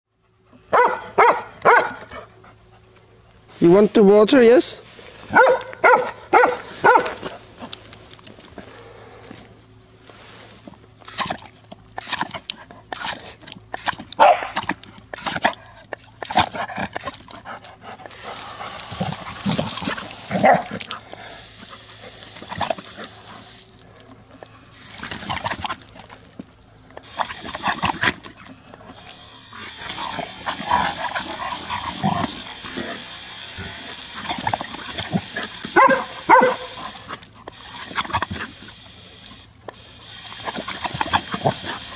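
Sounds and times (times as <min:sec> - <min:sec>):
dog barking: 0:00.7 - 0:02.1, 0:05.3 - 0:07.2, 0:14.2 - 0:14.6, 0:35.8 - 0:36.8
hose spray nozzle hissing: 0:18.0 - 0:26.2, 0:27.0 - 0:41.9.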